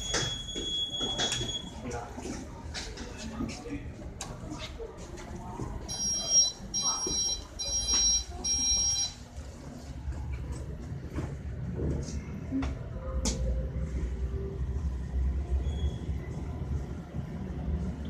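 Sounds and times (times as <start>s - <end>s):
high beeping tone: 5.9s - 9.2s.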